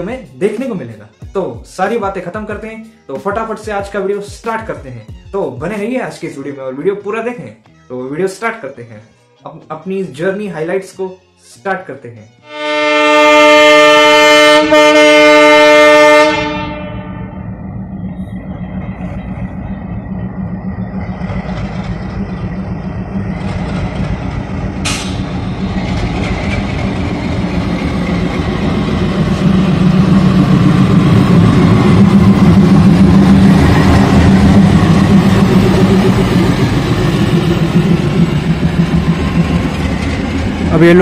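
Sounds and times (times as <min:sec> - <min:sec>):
diesel locomotive engine running: 0:13.6 - 0:41.0.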